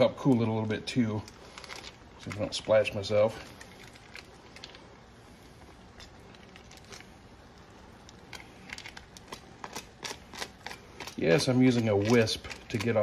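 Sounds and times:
foil wrapper crinkling: 0.0s - 5.0s, 5.9s - 13.0s
whisk scraping foil: 0.6s - 4.9s, 8.1s - 13.0s.

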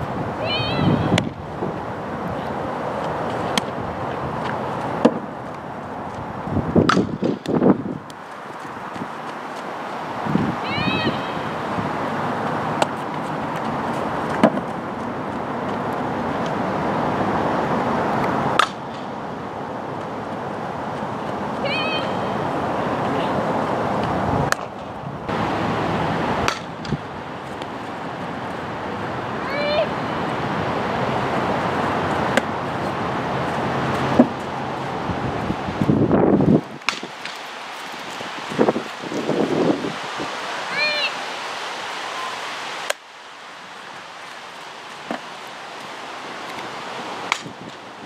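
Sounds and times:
outdoor background rush: 0.0s - 48.0s
wind hiss: 0.0s - 48.0s
bat hitting softball: 6.8s - 7.5s, 18.6s - 19.0s, 26.4s - 26.7s, 47.3s - 47.5s
softball smacks: 6.8s - 7.6s.

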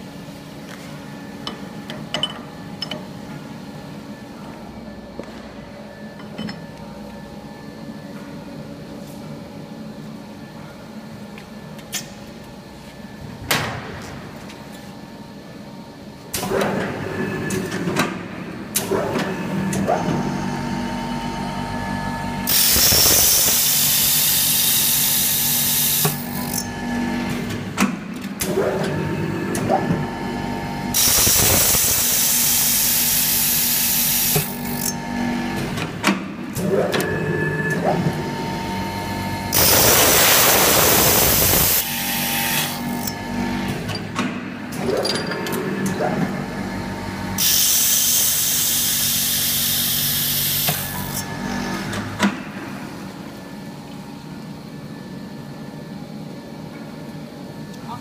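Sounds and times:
electric drill running: 22.5s - 26.3s, 31.0s - 34.6s, 39.5s - 43.0s.

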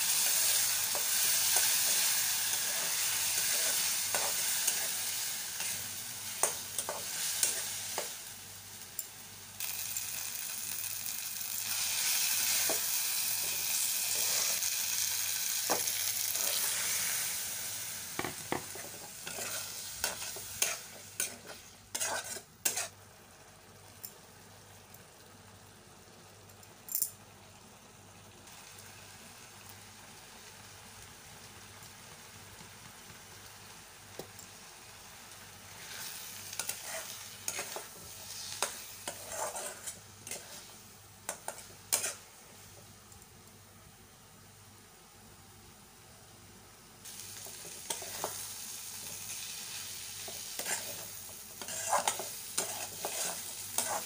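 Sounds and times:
paste sizzling in a pan: 0.0s - 26.6s, 27.3s - 43.5s, 46.7s - 54.0s
faint simmer: 0.0s - 54.0s
spatula scraping and knocking pan: 18.2s - 22.9s, 36.6s - 40.7s, 50.2s - 54.0s.

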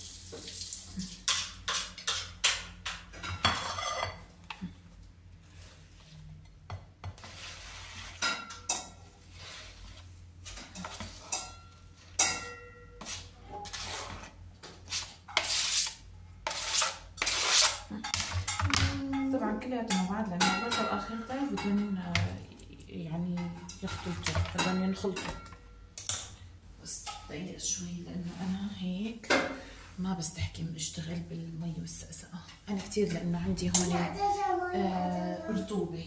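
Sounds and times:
dishes clattering: 1.2s - 4.3s, 8.2s - 9.0s, 10.6s - 13.0s, 18.0s - 22.4s, 23.4s - 26.4s
knife scraping on cutting board: 13.0s - 17.9s.

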